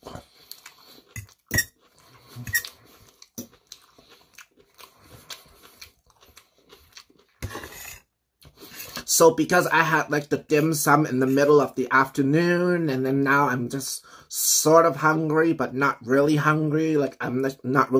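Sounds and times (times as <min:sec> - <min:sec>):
chewing: 0:00.0 - 0:07.5.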